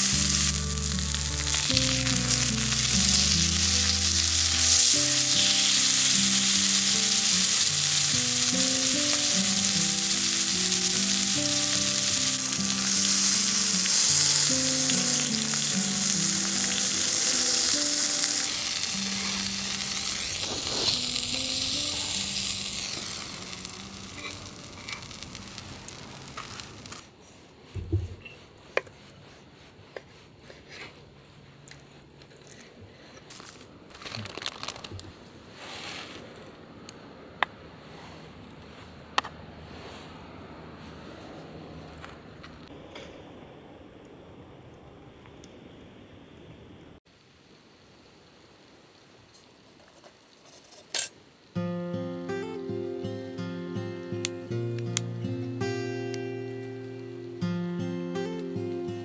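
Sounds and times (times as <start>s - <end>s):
background music: 0.0s - 25.8s, 51.6s - 59.0s
meat sizzling in a pan: 0.0s - 27.0s.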